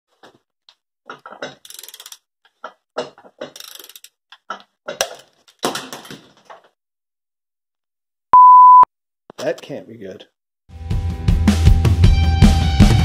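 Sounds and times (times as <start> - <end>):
ratchet clicking: 1.6 - 2.2, 3.5 - 4.2.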